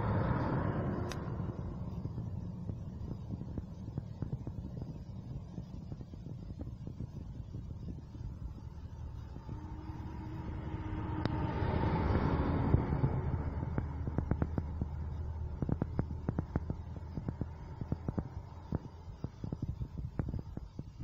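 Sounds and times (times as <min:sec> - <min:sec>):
truck passing by: 0:00.0 - 0:03.1, 0:09.0 - 0:18.6.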